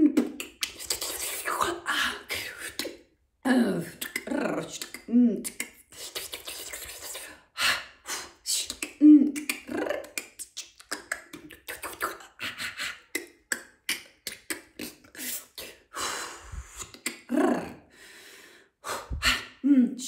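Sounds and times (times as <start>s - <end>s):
woman making mouth clicks: 0.0s - 1.8s, 2.4s - 3.0s, 3.8s - 7.4s, 8.4s - 15.8s, 16.8s - 17.8s.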